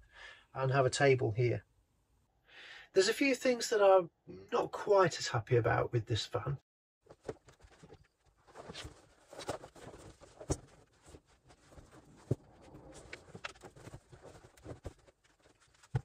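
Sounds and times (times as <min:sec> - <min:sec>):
fabric rustling: 0:07.1 - 0:16.0.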